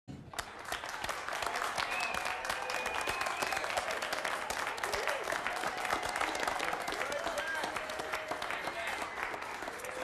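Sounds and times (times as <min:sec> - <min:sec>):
people clapping: 0:00.1 - 0:10.0.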